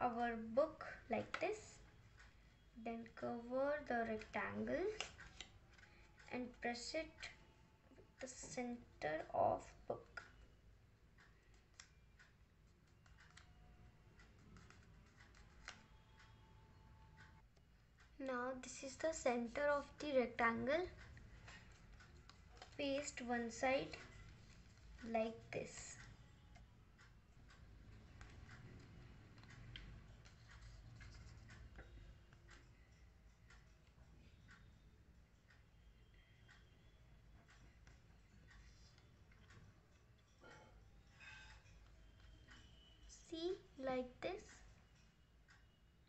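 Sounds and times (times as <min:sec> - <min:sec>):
soft ticks: 0:18.0 - 0:34.8, 0:36.4 - 0:36.7.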